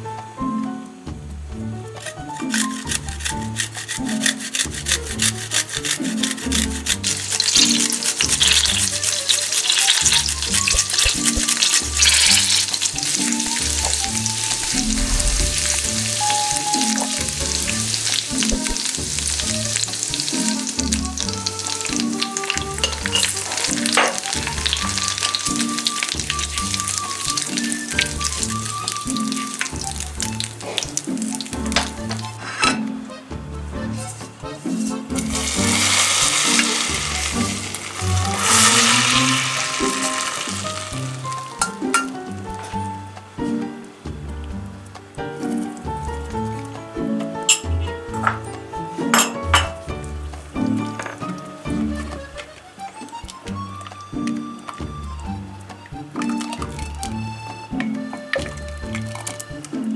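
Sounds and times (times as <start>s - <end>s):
soft background music: 0.0s - 59.9s
spatula stirring in pan: 2.0s - 15.0s, 15.8s - 32.3s, 34.9s - 42.0s
butter and garlic sizzling in pan: 2.0s - 32.4s, 35.2s - 42.8s.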